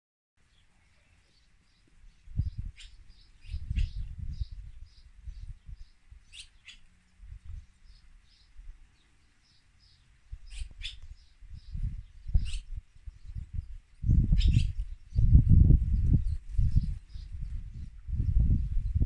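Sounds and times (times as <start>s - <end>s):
swallows chirping: 0.5s - 18.4s
low rumbling microphone noise: 2.0s - 6.4s, 9.8s - 19.0s.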